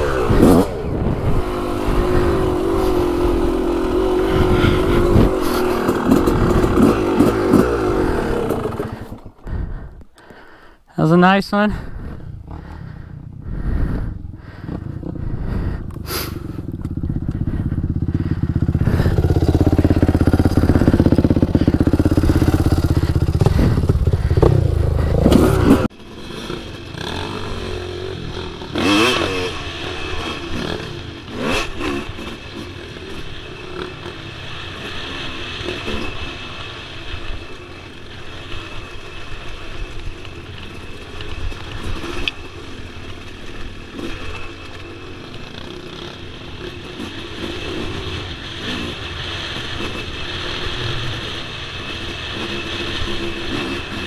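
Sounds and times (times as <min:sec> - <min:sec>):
dirt bike engine revving: 0:00.0 - 0:09.5, 0:11.8 - 0:54.0
wind rush: 0:00.0 - 0:10.1, 0:11.7 - 0:25.9
loud steady engine run: 0:15.2 - 0:27.4.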